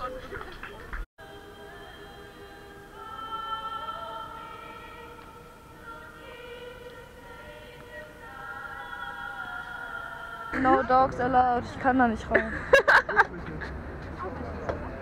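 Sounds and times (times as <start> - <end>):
choir singing unaccompanied: 1.2 - 11.6.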